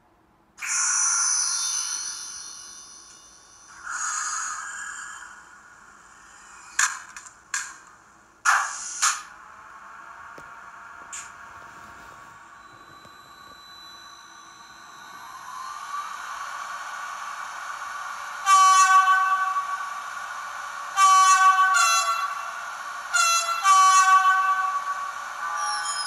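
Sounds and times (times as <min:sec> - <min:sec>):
electric locomotive hum: 0:00.5 - 0:26.0
train horn blasts: 0:18.3 - 0:20.2, 0:20.8 - 0:26.0.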